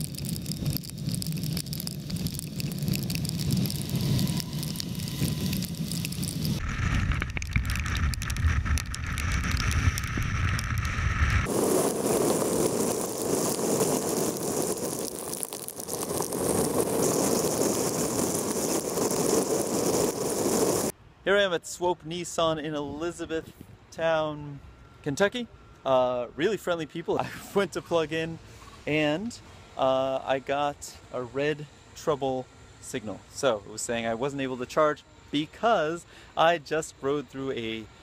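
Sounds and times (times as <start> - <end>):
rain and road spray hiss: 0.0 - 20.9
wind rushing on microphone: 0.1 - 20.9.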